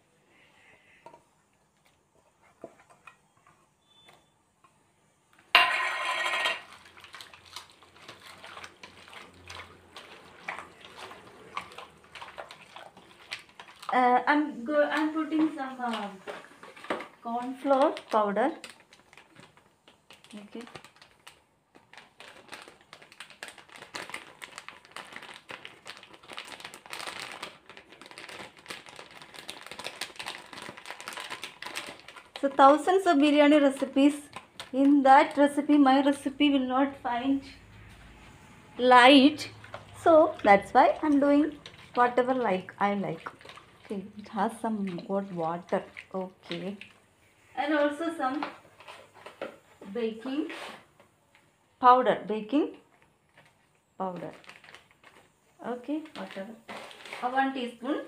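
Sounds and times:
hands squelching chicken paste: 6.7 - 14.2, 39.5 - 47.0
hand mixing wet marinade: 6.7 - 49.8.

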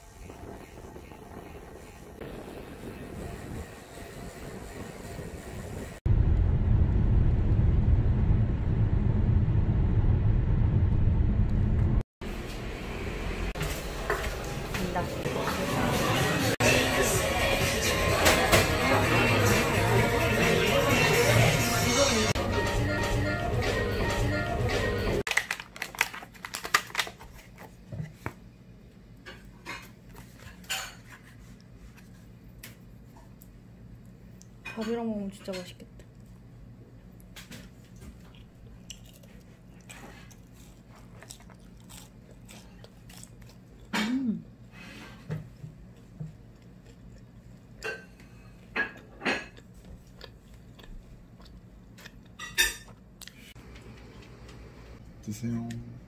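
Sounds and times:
paper rustling: 25.3 - 28.4
dishes and cutlery clinking: 47.8 - 49.6, 52.4 - 53.0.

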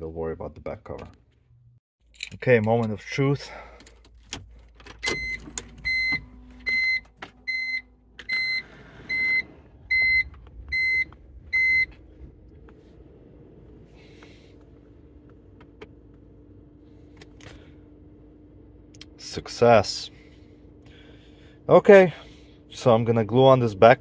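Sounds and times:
electronic warning beeps: 5.0 - 12.0.

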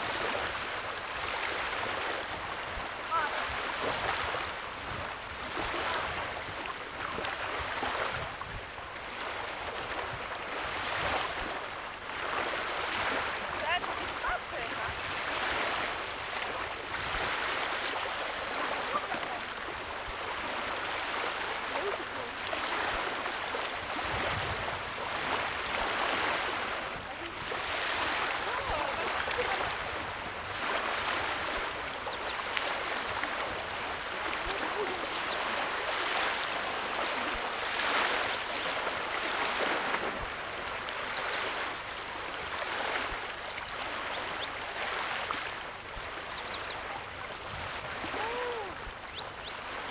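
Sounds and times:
lake water: 0.0 - 49.9
wind: 0.0 - 49.9.

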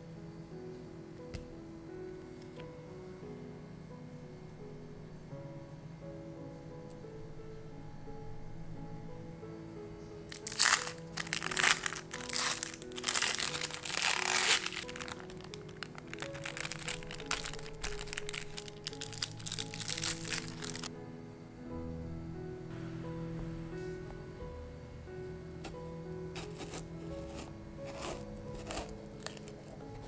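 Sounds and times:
background music: 0.0 - 30.0
plastic wrapper crinkling: 10.3 - 20.9, 26.4 - 30.0.

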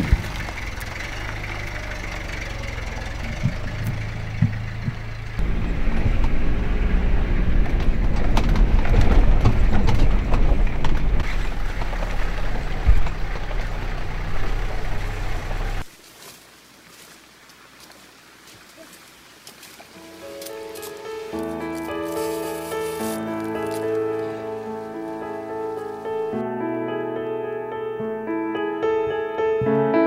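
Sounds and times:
engine running: 0.0 - 15.9, 20.0 - 26.4.

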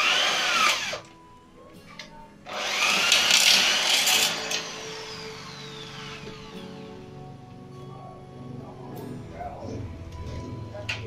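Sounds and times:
electric drill boring into metal: 0.0 - 1.1, 2.5 - 6.9
faint background music: 0.0 - 11.0.

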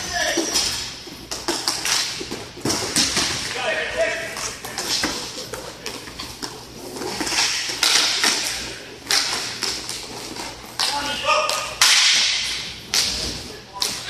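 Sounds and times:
hockey sticks clacking on puck: 0.0 - 14.0.

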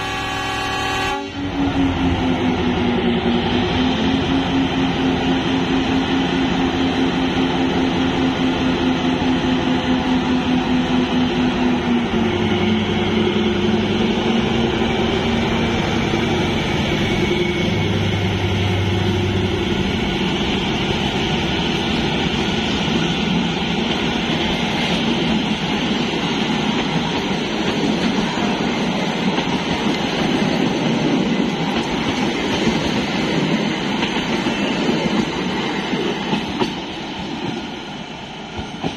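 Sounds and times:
diesel locomotive passing: 0.0 - 38.9
train wheels clattering on rails: 19.7 - 37.8, 38.5 - 38.9.

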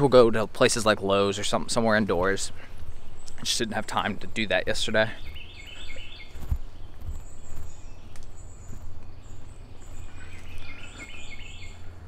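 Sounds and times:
footsteps on muddy trail: 1.4 - 12.0
wind rumble on microphone: 5.2 - 11.7
microphone handling thumps: 6.3 - 7.9.

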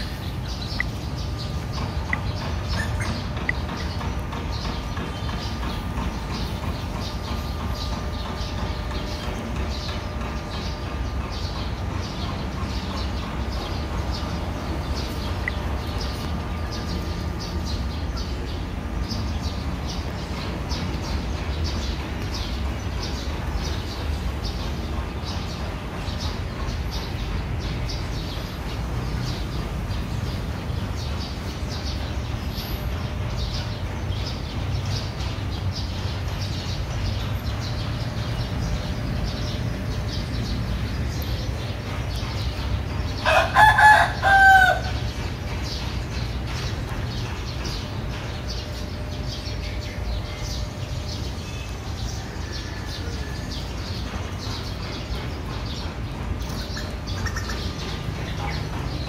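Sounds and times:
rooster crowing: 43.2 - 45.0.

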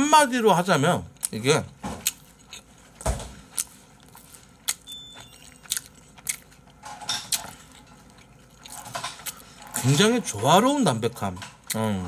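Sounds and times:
person chewing food: 2.0 - 10.4.

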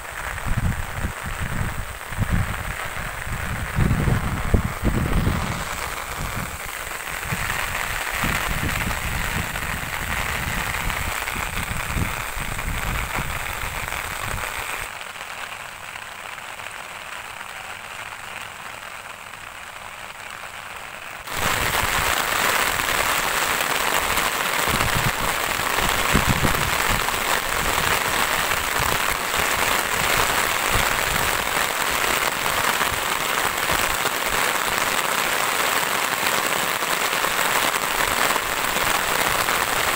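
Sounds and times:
rain falling on plants: 0.0 - 39.9
low rumbling on microphone: 0.4 - 14.5.

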